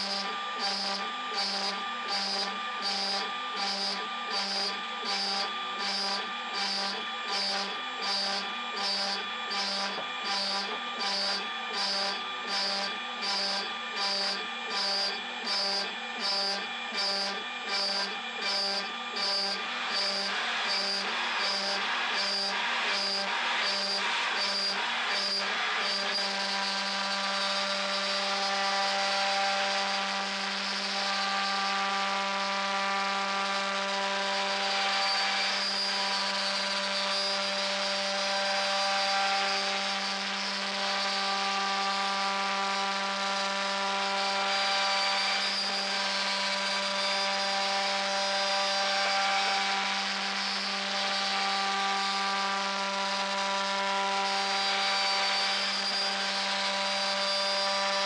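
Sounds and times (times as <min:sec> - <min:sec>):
router spindle whine: 0:00.0 - 0:58.0.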